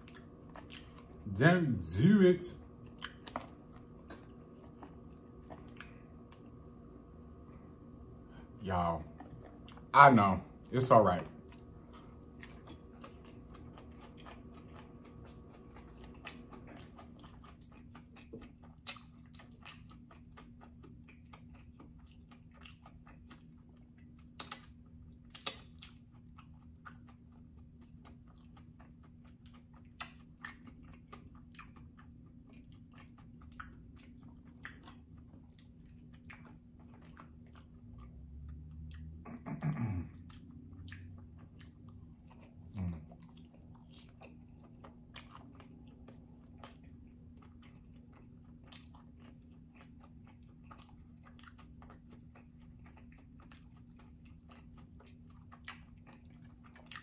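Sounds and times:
chewing with wet mouth clicks: 0:00.0 - 0:01.3, 0:02.6 - 0:06.8, 0:08.9 - 0:57.0
faint low hum: 0:00.0 - 0:57.0
person humming mm: 0:39.2 - 0:40.2, 0:42.7 - 0:43.1.

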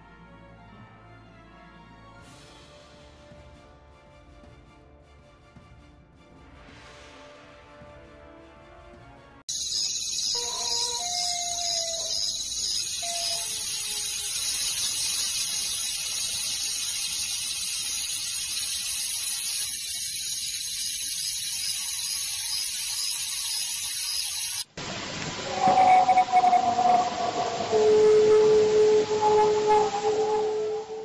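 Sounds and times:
high-pitched hiss: 0:09.5 - 0:31.0
faint wavering tones: 0:25.4 - 0:31.0.

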